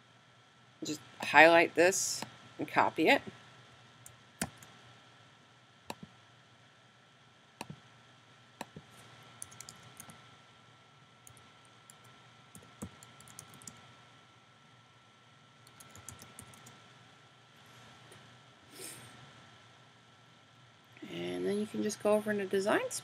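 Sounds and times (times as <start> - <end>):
computer mouse clicks: 4.0 - 4.7, 5.9 - 6.1, 8.6 - 10.2, 11.2 - 13.8, 15.6 - 16.8
keyboard typing: 4.4 - 4.7, 9.4 - 10.2, 11.2 - 13.8, 15.6 - 16.8.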